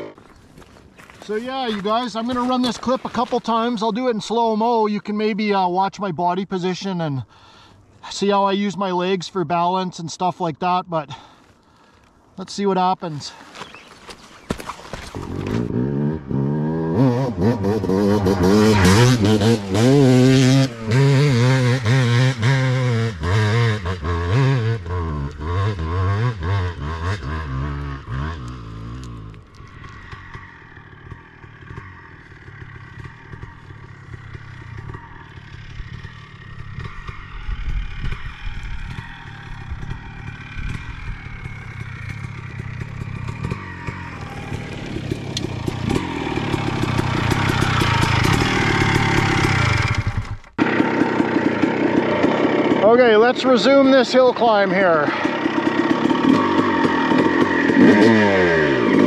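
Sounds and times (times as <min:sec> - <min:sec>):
two-stroke motorcycle engine revving: 0:15.2 - 0:59.0.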